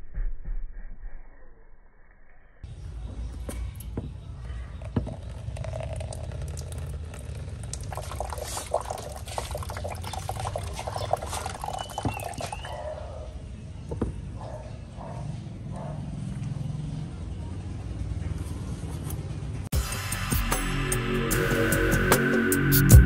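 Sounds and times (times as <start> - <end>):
water pouring into plastic cup: 4.8 - 12.7.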